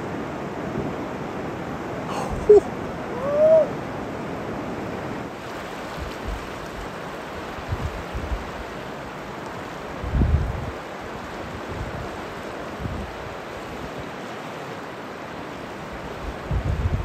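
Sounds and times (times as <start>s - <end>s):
river rapids rushing: 0.0s - 10.1s, 10.7s - 16.5s
person whooping: 2.1s - 3.7s.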